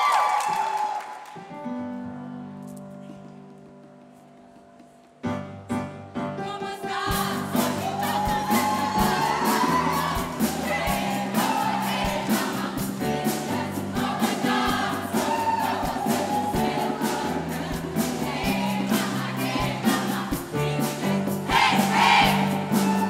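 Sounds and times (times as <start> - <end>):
group of voices singing: 6.3 - 23.0
drums with steady beat: 7.1 - 23.0.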